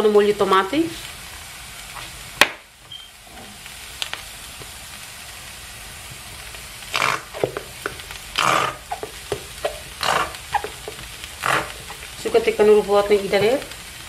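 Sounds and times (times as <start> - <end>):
onion sizzling in a frying pan: 0.0 - 14.0
squeeze bottle sputtering: 6.8 - 12.2.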